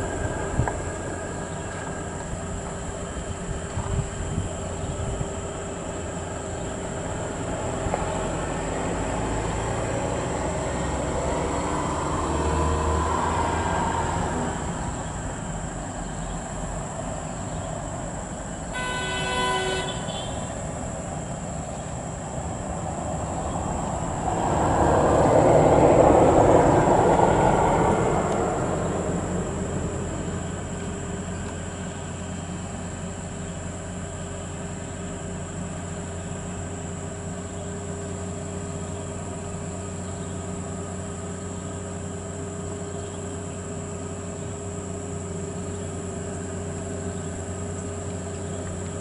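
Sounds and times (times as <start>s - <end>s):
diesel truck engine running: 0.0s - 49.0s
truck horn blast: 18.7s - 20.6s.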